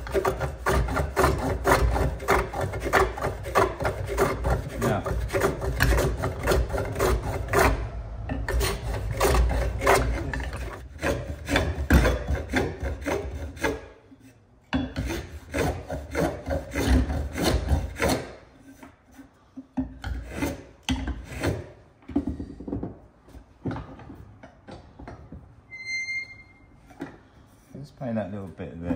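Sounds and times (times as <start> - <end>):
plane scraping wooden edge: 0.0 - 21.8
quiet rubbing strokes: 27.4 - 28.1.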